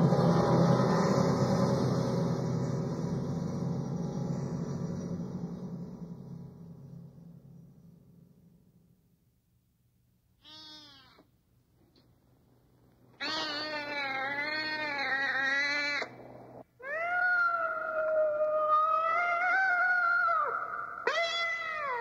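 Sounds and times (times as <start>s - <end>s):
low deep sound: 0.0s - 9.3s
cat yowling: 10.4s - 11.2s, 13.2s - 22.0s.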